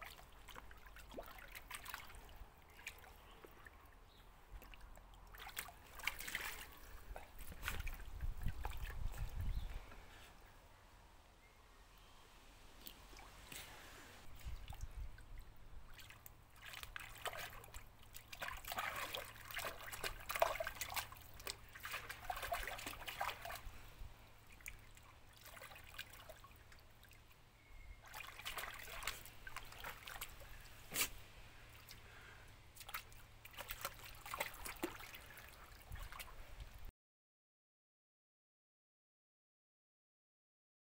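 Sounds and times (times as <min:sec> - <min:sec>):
water splashing in paddling pool: 0:00.0 - 0:04.0, 0:04.6 - 0:09.4, 0:12.8 - 0:27.3, 0:28.0 - 0:32.0, 0:32.8 - 0:36.9.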